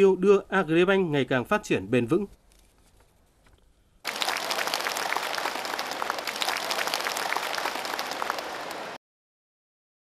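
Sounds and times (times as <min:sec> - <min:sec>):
crowd applauding: 0:04.1 - 0:09.0.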